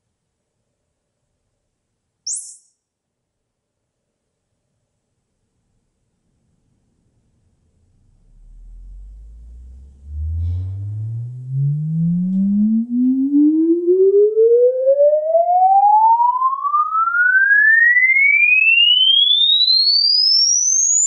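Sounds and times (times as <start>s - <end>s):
rising sine tone sweep: 7.8s - 21.0s.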